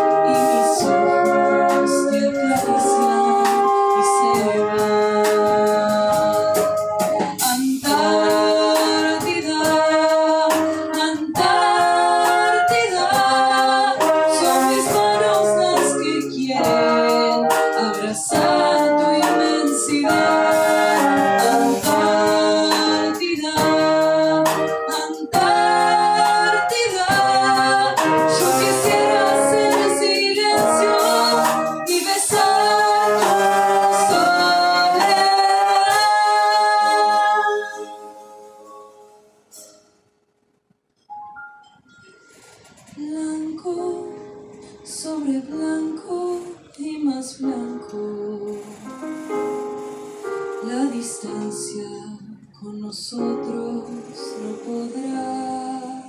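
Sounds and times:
wind ensemble playing: 0.0s - 39.4s, 48.4s - 51.2s.

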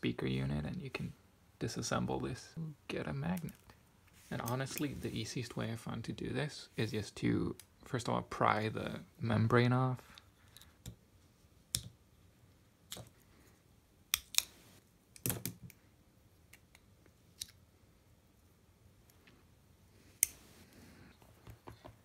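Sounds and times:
pliers clicking and snapping: 14.1s - 14.5s.

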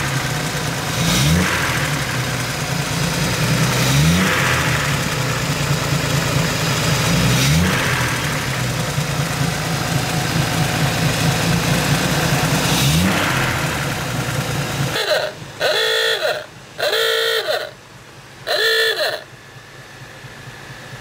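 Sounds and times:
car engine idling and revving: 0.0s - 21.0s
car horn toots: 14.9s - 17.8s, 18.4s - 19.4s.

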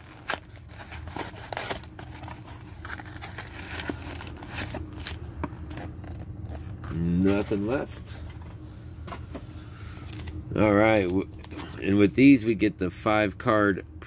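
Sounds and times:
cardboard box tearing: 0.0s - 5.2s
steady low hum: 0.0s - 14.0s.

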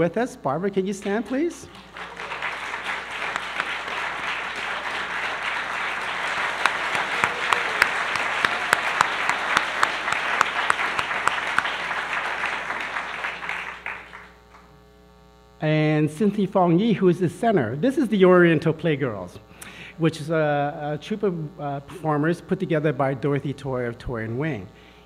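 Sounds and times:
audience applauding: 0.9s - 14.7s
single sharp claps: 1.0s - 14.7s.

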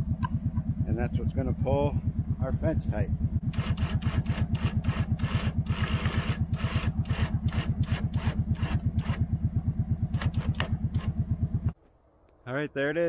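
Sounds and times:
atv engine running at low revs: 0.0s - 11.8s
sharp clicks: 3.5s - 9.3s, 10.1s - 12.4s.

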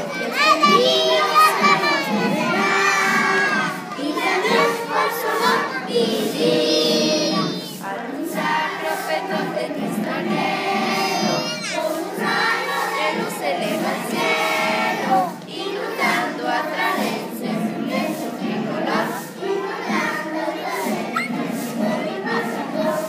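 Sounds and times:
young children's voices: 0.0s - 7.8s, 11.0s - 13.4s, 19.2s - 23.0s
children singing: 0.0s - 23.0s.

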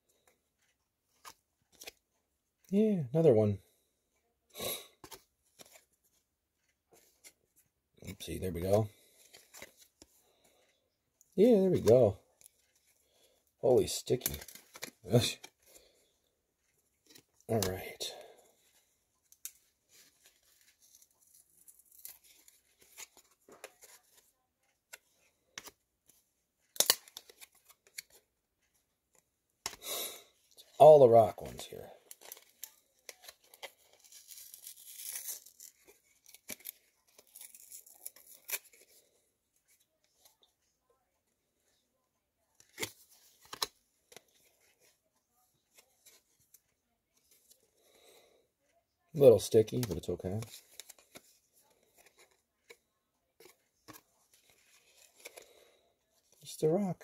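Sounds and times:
cards snapping apart: 26.7s - 28.2s, 29.6s - 29.9s, 42.6s - 44.2s.

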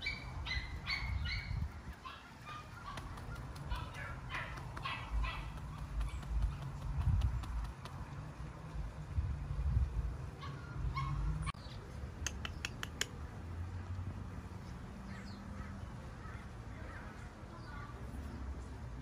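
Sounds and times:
birds chirping: 0.0s - 7.9s
sharp clicks: 5.5s - 8.1s, 12.2s - 13.2s.

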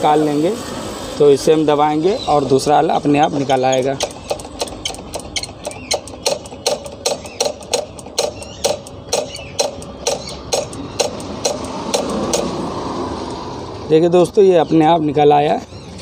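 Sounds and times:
rapid mechanical clicking: 3.3s - 12.6s.

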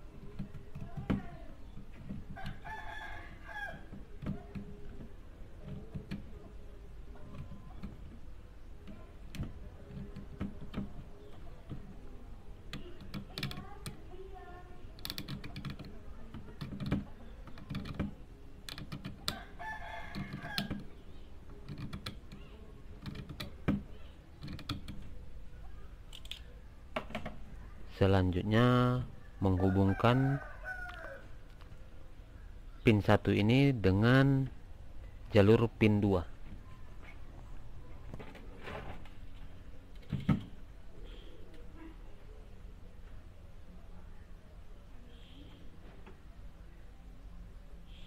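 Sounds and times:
rooster crowing: 2.4s - 3.9s, 19.3s - 20.7s, 29.5s - 31.4s.

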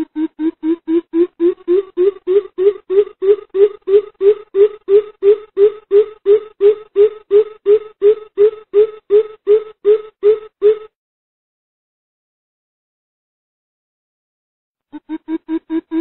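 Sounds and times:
bird giving deep hoots: 0.0s - 10.9s.

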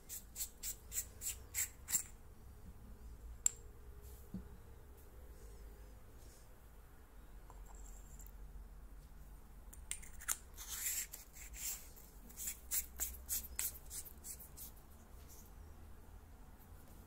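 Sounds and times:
metal threads clicking and rubbing: 0.1s - 2.2s.

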